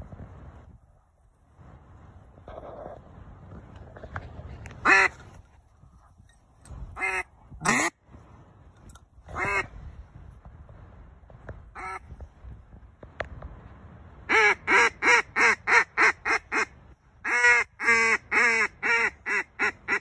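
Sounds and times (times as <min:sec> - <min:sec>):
duck call quacks: 0:04.8 - 0:05.2, 0:07.0 - 0:08.0, 0:09.3 - 0:09.7, 0:11.8 - 0:12.0, 0:14.3 - 0:20.0.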